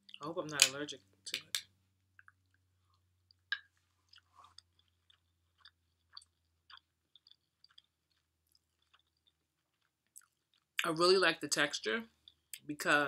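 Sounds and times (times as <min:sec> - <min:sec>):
person chewing: 0:02.2 - 0:10.8, 0:12.2 - 0:12.6.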